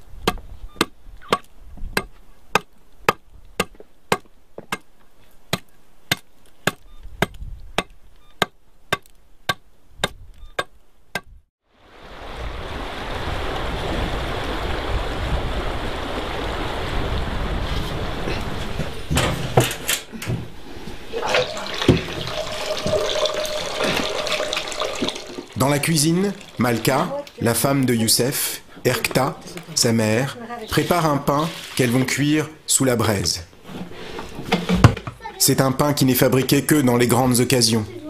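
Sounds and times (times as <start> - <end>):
running water rushing: 11.8 - 19.5, 20.6 - 30.2.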